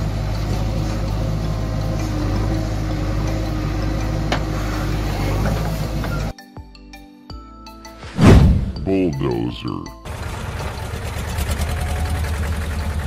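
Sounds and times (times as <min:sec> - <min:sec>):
diesel engine running: 0:00.0 - 0:06.3, 0:10.1 - 0:13.0
backhoe digging sand: 0:00.5 - 0:06.3.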